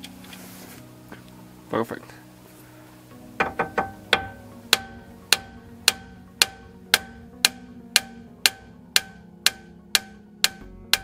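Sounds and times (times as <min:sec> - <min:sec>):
hammer blows on metal: 0:03.4 - 0:11.0.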